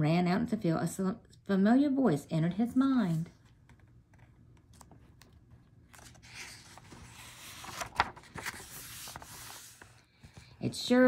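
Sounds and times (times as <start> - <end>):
paper crackles: 3.1 - 10.6
paper page rustling: 3.1 - 10.6.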